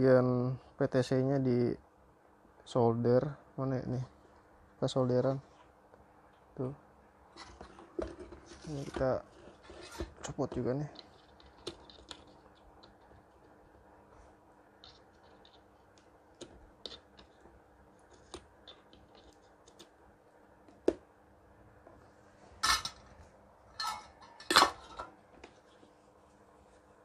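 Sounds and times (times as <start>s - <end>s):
tools clattering: 22.6s - 23.1s, 23.7s - 25.2s.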